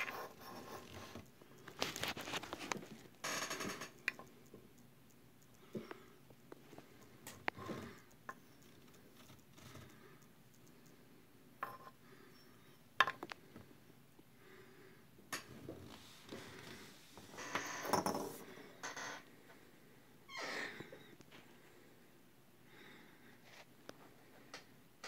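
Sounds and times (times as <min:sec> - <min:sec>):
scraping and rustling handling: 0:00.0 - 0:03.1.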